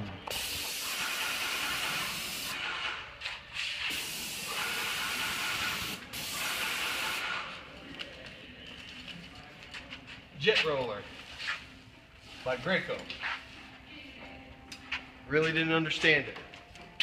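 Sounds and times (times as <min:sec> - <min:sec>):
paint roller hissing: 0:00.3 - 0:02.6, 0:03.6 - 0:07.5.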